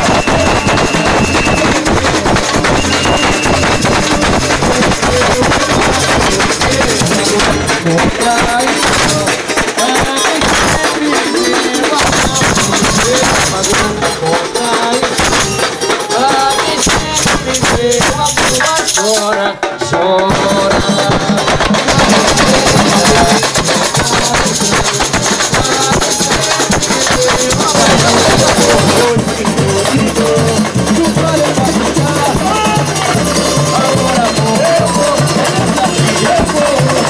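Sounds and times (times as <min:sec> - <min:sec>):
small drums struck with sticks: 0:00.0 - 0:37.0
metal jingles shaken: 0:21.8 - 0:37.0.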